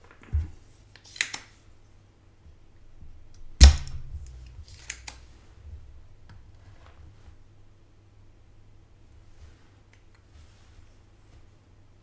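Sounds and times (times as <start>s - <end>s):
sharp knock: 3.6s - 5.3s.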